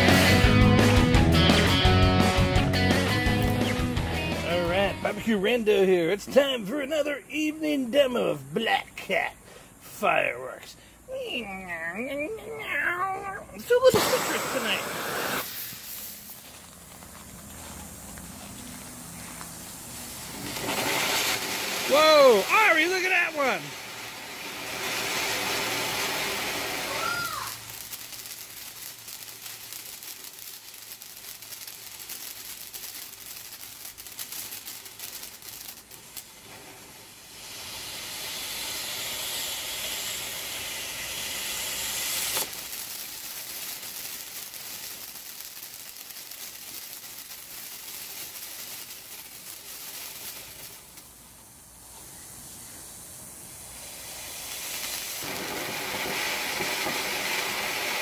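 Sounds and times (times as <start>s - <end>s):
firework fountain hissing: 0.0s - 58.0s
sharp pop: 42.3s - 42.5s.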